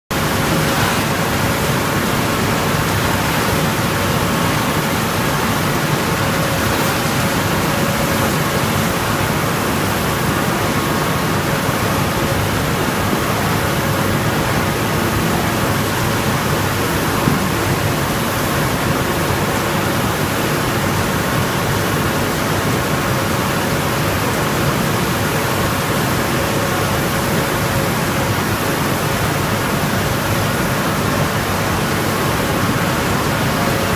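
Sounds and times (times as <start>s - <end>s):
pellet mill machinery running: 0.1s - 33.9s.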